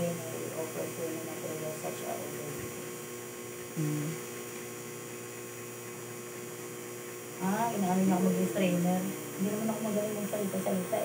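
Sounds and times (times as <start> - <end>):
tattoo machine humming: 0.0 - 11.0.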